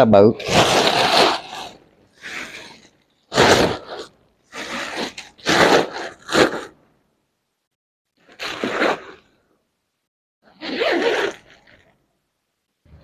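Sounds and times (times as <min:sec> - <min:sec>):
bag fabric rustling: 0:00.4 - 0:06.7.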